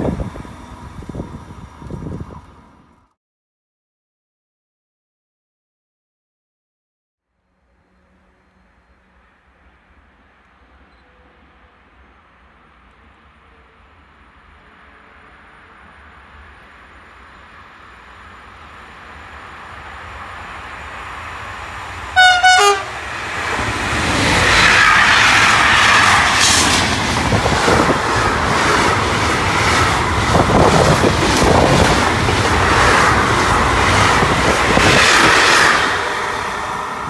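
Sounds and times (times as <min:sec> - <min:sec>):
train wheels on rails: 0:07.7 - 0:37.0
train horn blast: 0:22.2 - 0:23.1.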